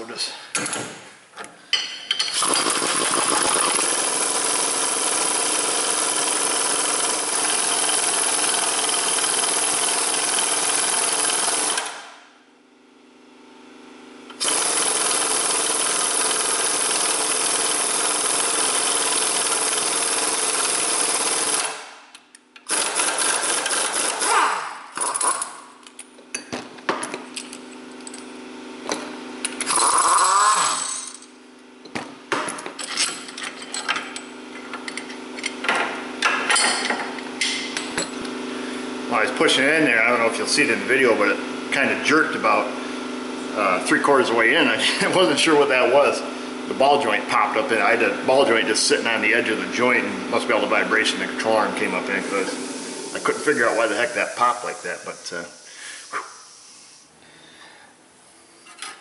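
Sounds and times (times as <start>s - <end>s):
impact wrench hammering: 1.8s - 11.9s.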